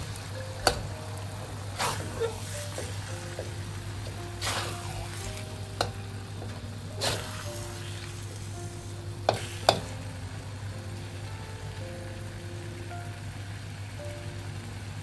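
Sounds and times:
eggs and meat sizzling in wok: 0.0 - 15.0
metal spatula scraping wok: 1.8 - 2.9, 4.3 - 5.9, 6.9 - 8.5, 9.3 - 9.9.

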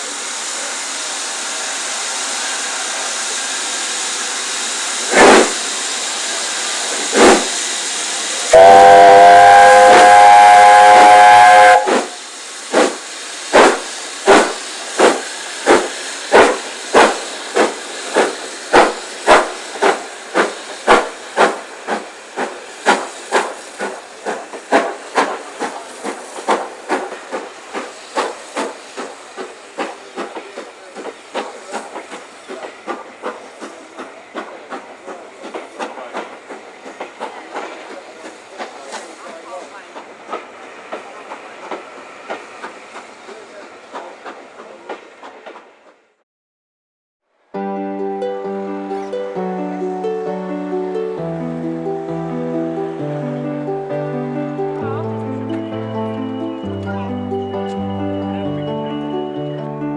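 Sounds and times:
steam hissing: 0.0 - 46.0
steam locomotive exhaust chuffs: 0.0 - 46.2
steam whistle: 8.5 - 12.2.

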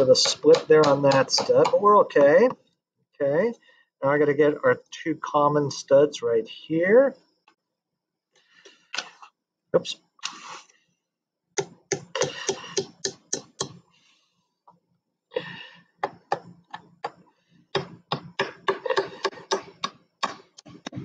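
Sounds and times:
hammer tapping nails into wood: 0.2 - 2.4, 11.6 - 13.8.

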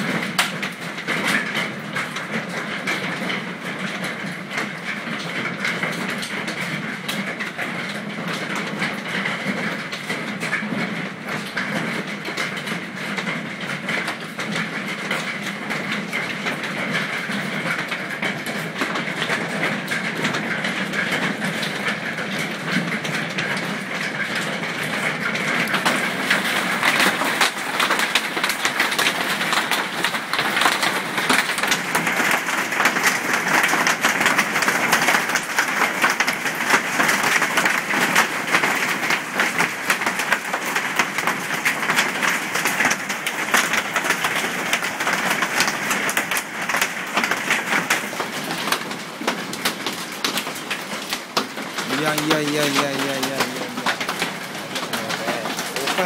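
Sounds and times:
hailstones pelting a roof: 0.0 - 56.0.

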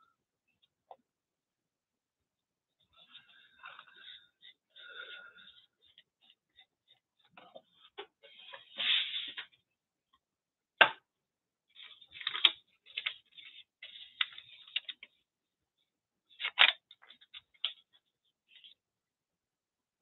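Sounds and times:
paper rustling: 11.8 - 15.2, 16.3 - 18.8.

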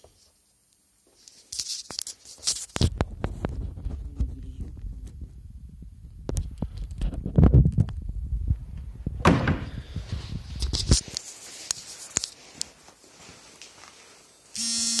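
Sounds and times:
rumbling handling noise: 2.8 - 11.1
steady buzzing tone: 14.2 - 15.0.

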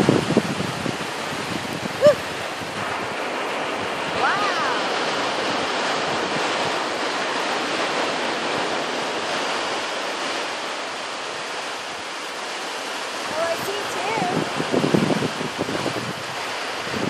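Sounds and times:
ocean surf breaking: 0.0 - 17.0
wind noise on microphone: 0.0 - 17.0.

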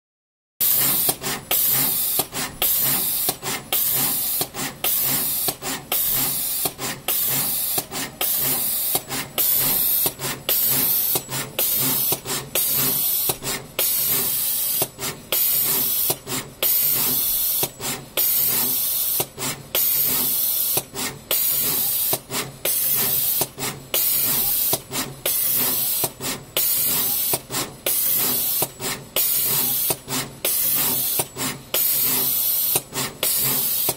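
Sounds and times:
machine air hiss: 0.6 - 33.9.

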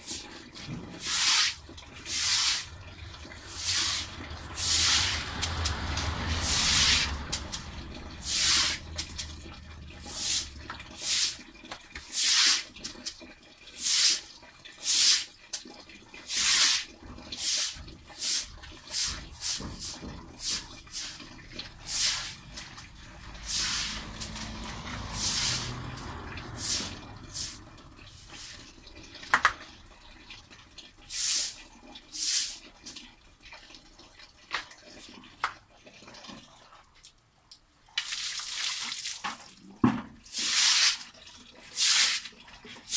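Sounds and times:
water swishing on concrete floor: 0.0 - 37.2, 37.8 - 42.9
passing car rumble: 1.6 - 12.0, 17.8 - 30.7.

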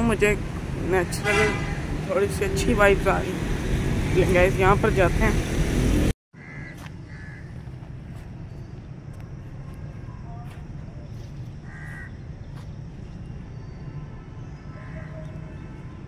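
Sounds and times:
crows cawing: 6.4 - 7.7, 11.6 - 12.2.

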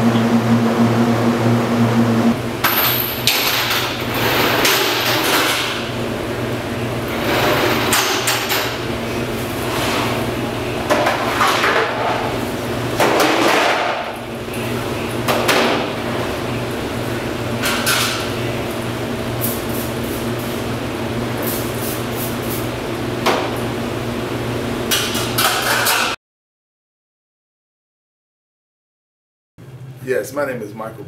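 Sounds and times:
steady low hum: 0.0 - 11.4.

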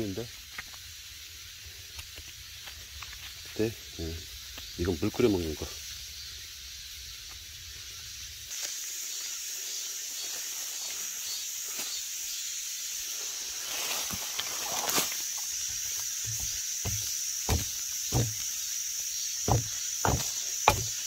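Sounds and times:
high-pitched insect chorus: 0.0 - 21.0
footsteps on dry leaves: 13.5 - 18.6, 19.5 - 21.0.

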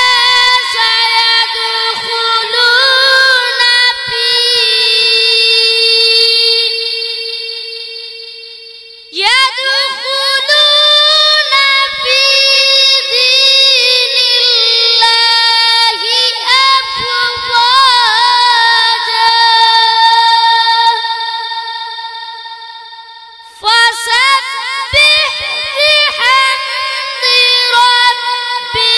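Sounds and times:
boy reciting melodically: 0.0 - 28.9.

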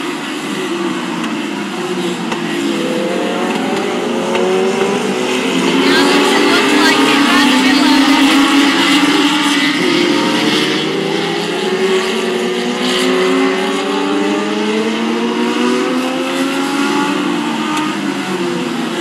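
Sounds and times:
race car engines passing: 0.0 - 19.0.

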